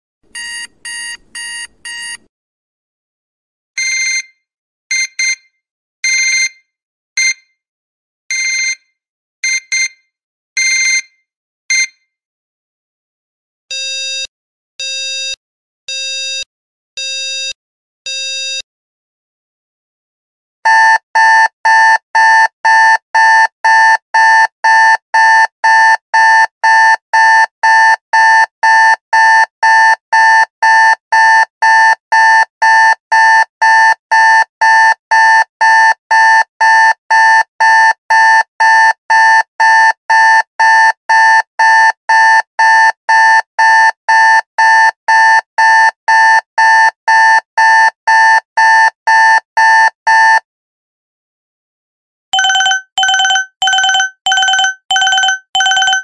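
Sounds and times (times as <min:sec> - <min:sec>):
digital alarm clock beeping: 0:00.4 - 0:02.2, 0:03.8 - 0:04.3, 0:04.9 - 0:05.4, 0:06.1 - 0:06.5, 0:08.3 - 0:08.8, 0:09.4 - 0:09.9, 0:10.6 - 0:11.0, 0:20.7 - 0:50.4, 0:52.4 - 0:56.0.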